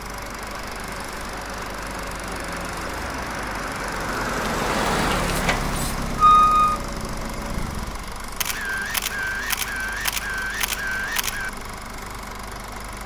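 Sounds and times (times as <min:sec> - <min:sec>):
vehicle passing: 0:02.7 - 0:06.2
short high beep: 0:06.2 - 0:06.9.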